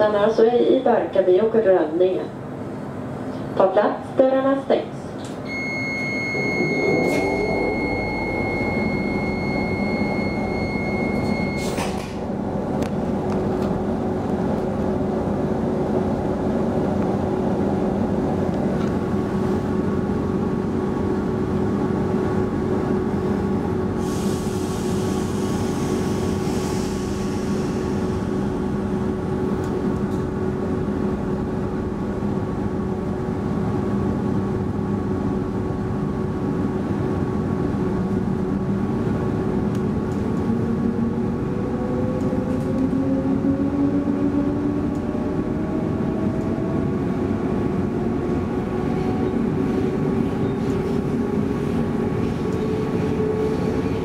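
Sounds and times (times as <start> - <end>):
train hum and rumble: 0.0 - 54.0
door warning beep: 5.4 - 12.0.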